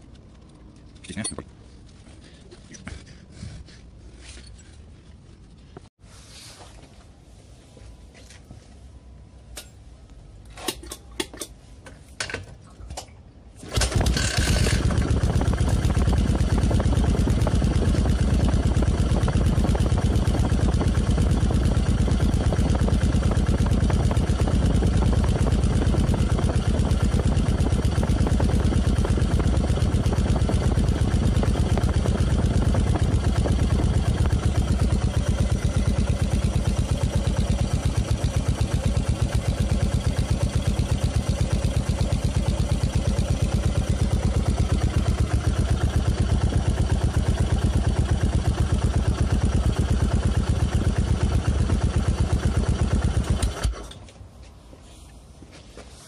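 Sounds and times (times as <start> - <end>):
motorcycle engine idling: 13.8 - 53.7.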